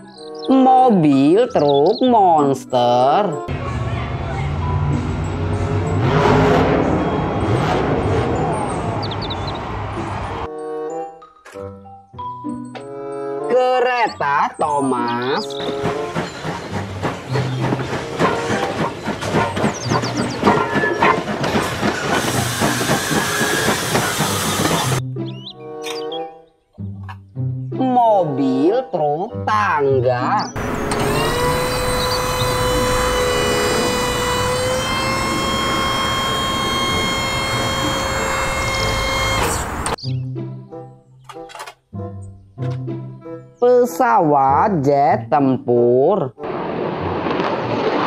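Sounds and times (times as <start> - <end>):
truck engine: 3.5 - 10.5, 15.4 - 25.0, 30.6 - 40.0
steam locomotive chuffing: 15.2 - 25.0, 30.6 - 40.0
wheels clattering on rails: 15.2 - 25.0
hydraulic whine: 15.5 - 25.0, 30.6 - 40.0.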